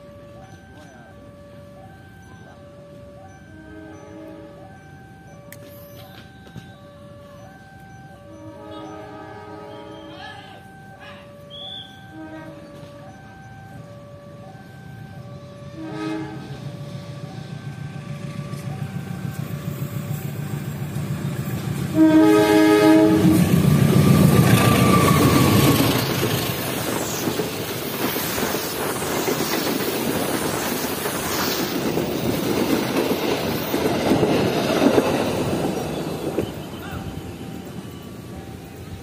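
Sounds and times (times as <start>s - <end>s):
train rumbling past: 0.0s - 39.0s
train horn blast: 3.5s - 4.6s, 8.3s - 10.4s, 11.5s - 13.1s, 15.5s - 17.4s, 21.9s - 25.8s.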